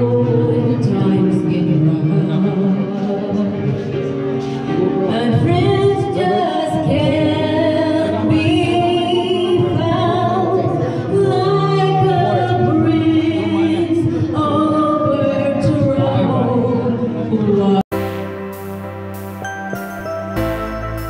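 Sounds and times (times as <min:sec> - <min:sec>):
woman singing into microphone: 0:00.0 - 0:04.2, 0:04.8 - 0:17.8
backing music: 0:17.9 - 0:21.0.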